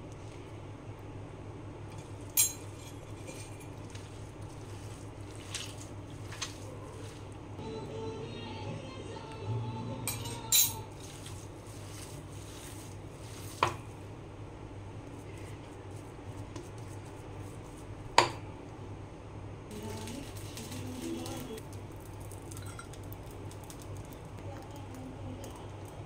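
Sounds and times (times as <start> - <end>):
hands mixing minced meat: 0.0 - 0.8, 1.9 - 7.8, 10.8 - 14.2, 14.9 - 18.2
metal clinking against glass: 10.1 - 10.8.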